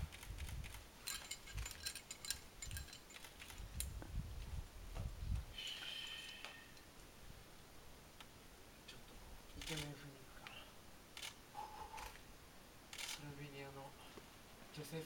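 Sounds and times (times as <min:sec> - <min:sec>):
faint low thumps: 0:03.6 - 0:05.6
camera shutter clicks: 0:09.6 - 0:09.9, 0:11.2 - 0:11.4, 0:12.9 - 0:13.2.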